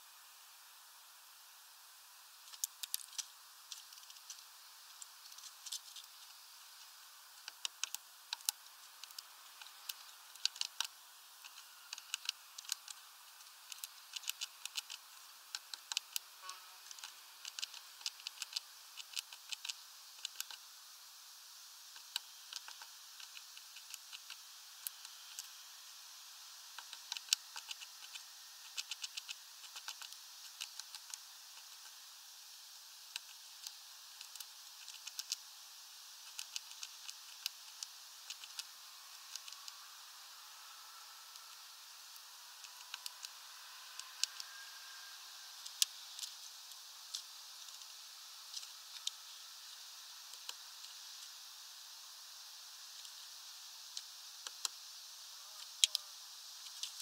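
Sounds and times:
faint steady hiss: 0:00.0 - 0:57.0
bird pecking at seeds: 0:02.4 - 0:20.8, 0:21.8 - 0:51.6, 0:52.2 - 0:57.0.

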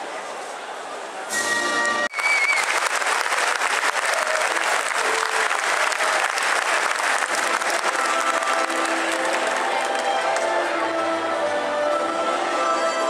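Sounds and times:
short high whistle: 0:01.3 - 0:02.8
large crowd applauding: 0:02.1 - 0:10.6.

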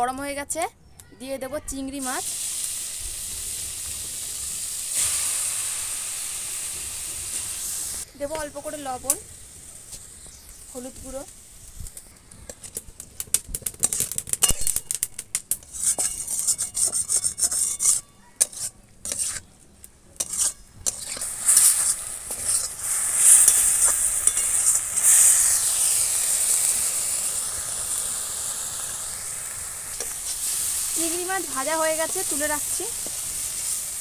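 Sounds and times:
prawns sizzling in oil: 0:01.8 - 0:19.5, 0:20.2 - 0:34.0
spatula scraping metal pan: 0:15.6 - 0:19.5, 0:20.2 - 0:25.2.

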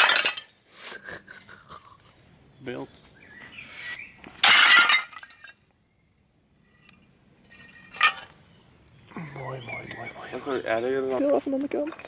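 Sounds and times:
roof tiles shattering: 0:00.0 - 0:00.6, 0:04.4 - 0:05.6, 0:07.6 - 0:08.3.

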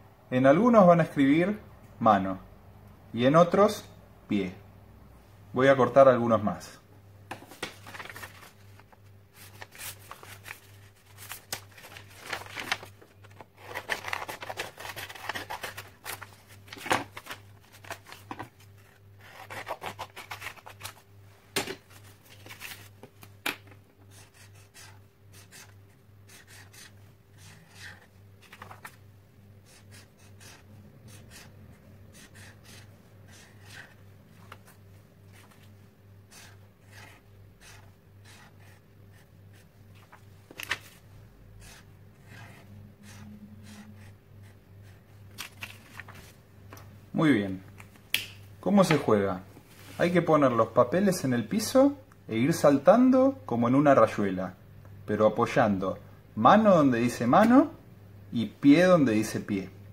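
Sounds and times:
paper rustling: 0:07.3 - 0:23.8, 0:26.4 - 0:29.0, 0:39.9 - 0:41.0, 0:45.3 - 0:46.4
scissors snipping paper: 0:19.3 - 0:20.8.

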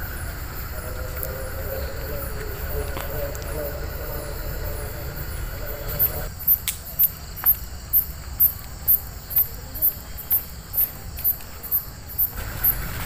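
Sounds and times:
low rumble: 0:00.0 - 0:06.3
cricket chirping: 0:00.0 - 0:13.0.

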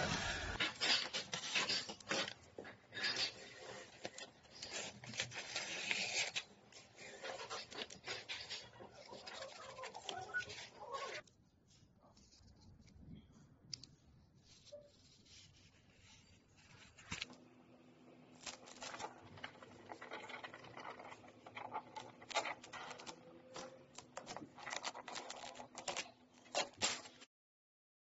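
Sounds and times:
plastic film crackling and scratching: 0:00.0 - 0:11.3, 0:18.4 - 0:27.3.

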